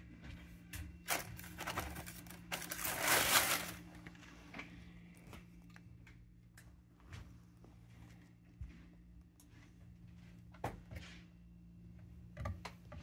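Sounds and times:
packing paper crinkling: 0:01.1 - 0:04.2.

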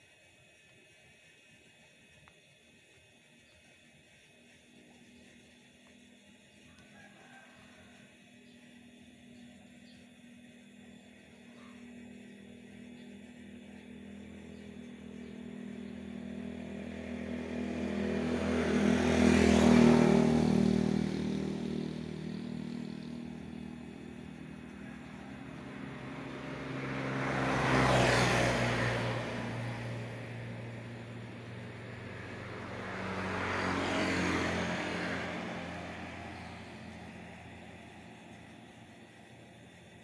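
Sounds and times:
vehicles passing by: 0:12.8 - 0:40.0.

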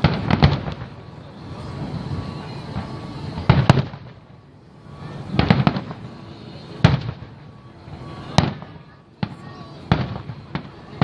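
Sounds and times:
fireworks bursting: 0:00.0 - 0:11.0.

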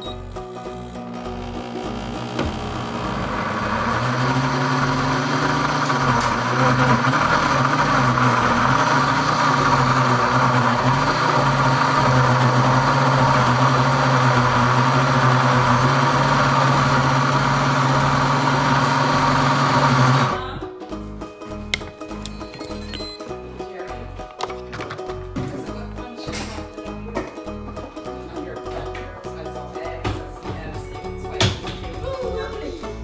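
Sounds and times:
blender motor blending batter: 0:00.0 - 0:20.4.

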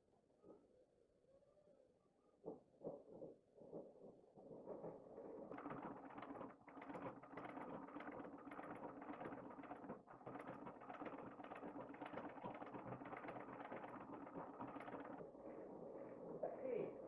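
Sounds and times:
sewing machine clattering: 0:04.6 - 0:15.3.

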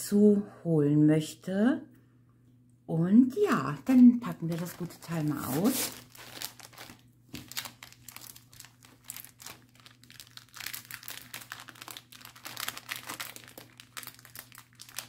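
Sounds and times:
plastic packaging crackling: 0:03.8 - 0:15.0.

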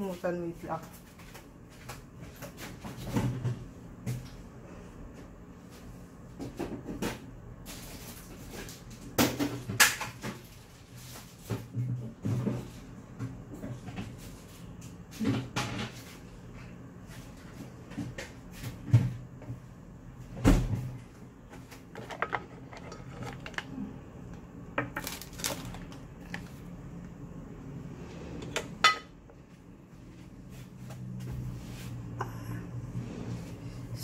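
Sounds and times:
low steady hum: 0:10.4 - 0:34.0.

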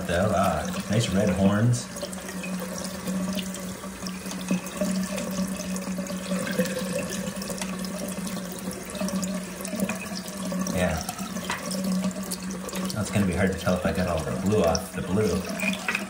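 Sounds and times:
tap running into sink: 0:04.2 - 0:16.0.

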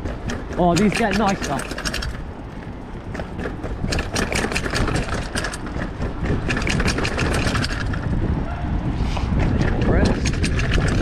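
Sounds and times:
bike rattling down steps: 0:00.0 - 0:08.4, 0:09.3 - 0:11.0
low rumble: 0:02.0 - 0:11.0.

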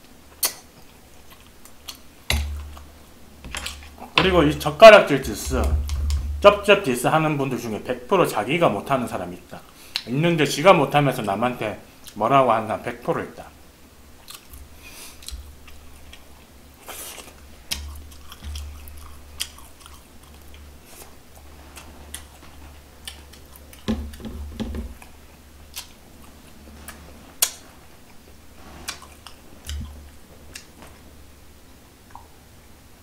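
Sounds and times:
wet chewing mouth clicks: 0:00.3 - 0:03.0, 0:14.2 - 0:21.2, 0:21.8 - 0:23.9, 0:25.0 - 0:30.8, 0:32.1 - 0:32.4
low hum: 0:02.3 - 0:07.2.

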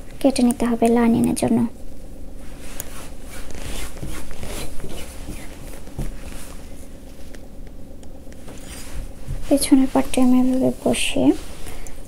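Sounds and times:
cloth rubbing against cloth: 0:02.4 - 0:07.3, 0:08.4 - 0:11.8.

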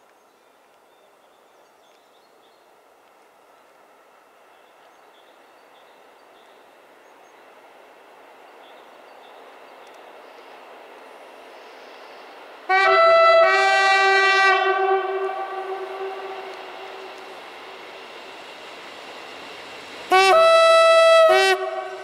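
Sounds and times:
train running noise: 0:01.6 - 0:22.0
train horn blasts: 0:12.7 - 0:17.2, 0:20.1 - 0:22.0.

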